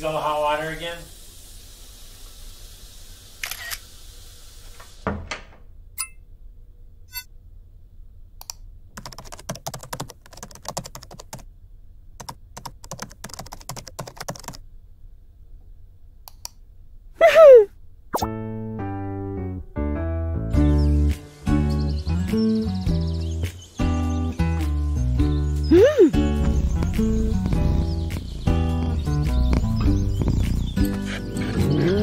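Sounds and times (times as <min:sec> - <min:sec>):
steady hiss: 0:00.0 - 0:05.2, 0:21.0 - 0:31.2
thump: 0:05.0 - 0:05.6
typing on computer keyboard: 0:08.9 - 0:11.4, 0:12.2 - 0:14.6.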